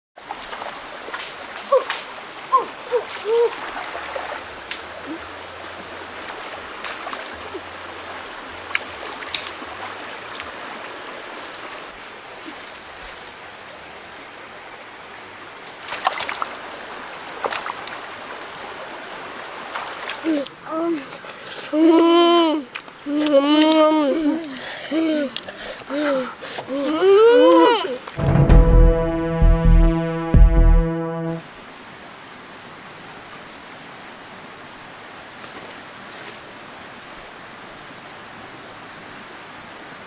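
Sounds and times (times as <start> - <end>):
water splashes: 0.2 - 12.8, 15.6 - 22.0
stream running over stones: 0.2 - 28.2, 31.7 - 40.0.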